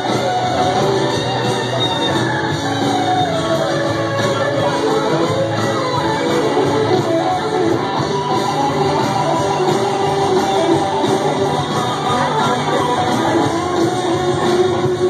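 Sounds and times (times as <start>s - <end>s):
guitar: 0.0s - 15.0s
loud band music: 0.0s - 15.0s
person singing: 4.2s - 15.0s.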